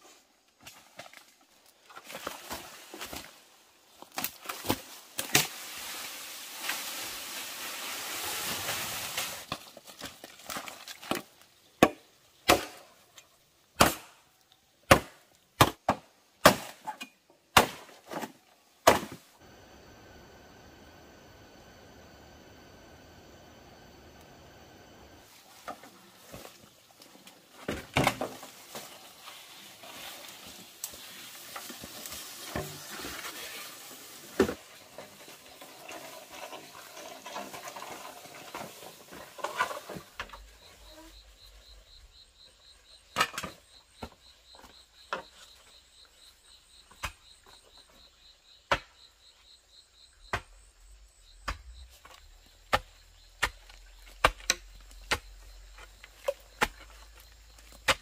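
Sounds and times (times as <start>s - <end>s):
rustling hiss: 5.2s - 9.7s, 19.3s - 27.6s, 28.4s - 42.4s.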